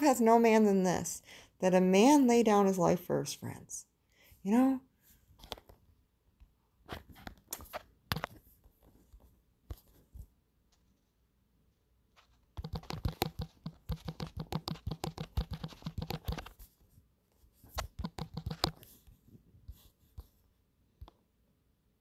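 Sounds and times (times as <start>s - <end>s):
fingertip taps on touchscreen: 12.6s - 16.4s.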